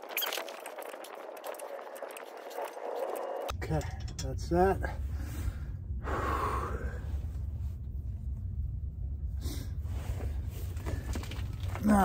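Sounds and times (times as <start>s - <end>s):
steady low rumble: 1.2s - 12.0s
man exhaling: 5.4s - 7.1s.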